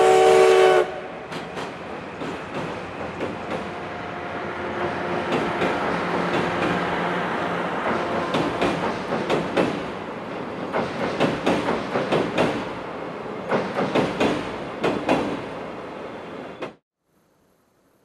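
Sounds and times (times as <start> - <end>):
train wheels rumbling: 0.0 - 16.8
clickety-clack over rail joints: 1.3 - 3.8, 4.8 - 7.0, 7.7 - 12.8, 13.4 - 15.5.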